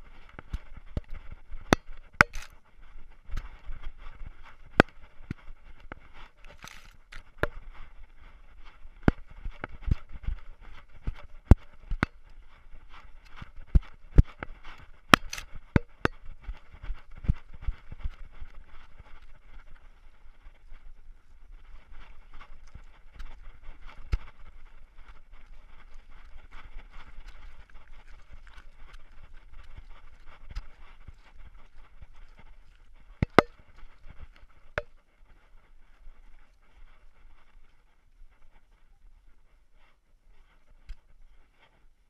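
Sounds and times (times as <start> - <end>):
camera rattling: 2.2 - 2.6, 6.5 - 7.3, 15.2 - 15.6.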